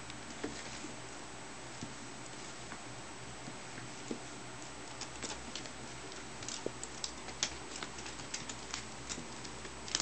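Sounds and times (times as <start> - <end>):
ferret scrabbling: 4.8 - 10.0.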